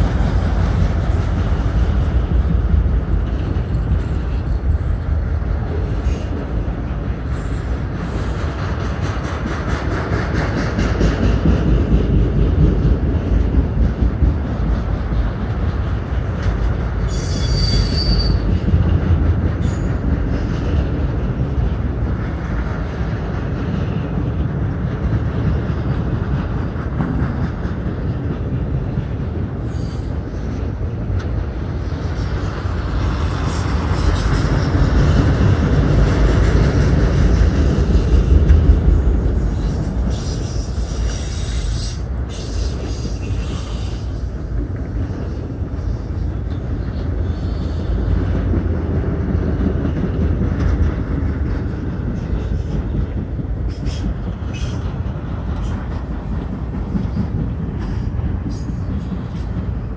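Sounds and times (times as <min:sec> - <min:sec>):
train wheels rumbling on rails: 0:00.0 - 0:59.9
wheel squeal: 0:17.1 - 0:18.5.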